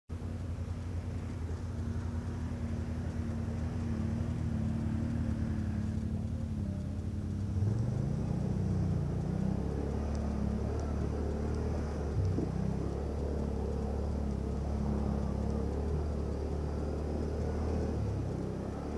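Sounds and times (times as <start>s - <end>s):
quad bike engine running: 0.1s - 18.9s
water splashing around wheels: 0.1s - 18.9s.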